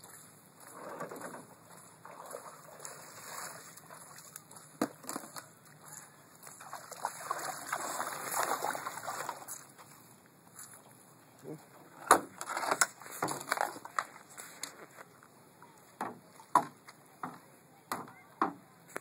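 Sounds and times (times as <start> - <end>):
feet splashing through water: 0.0 - 11.0.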